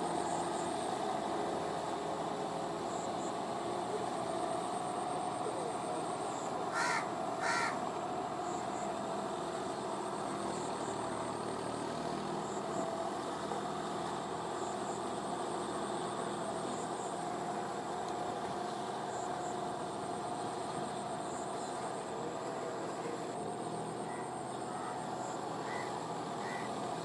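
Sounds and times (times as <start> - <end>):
tractor diesel engine running: 0.0 - 27.0
crow cawing: 6.7 - 7.8, 25.6 - 26.8.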